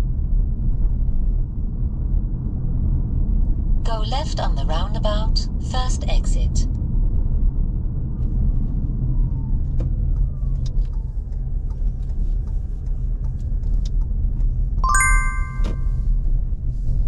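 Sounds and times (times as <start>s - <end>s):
engine and road rumble: 6.7s - 14.8s
bell-like chime: 14.8s - 15.8s.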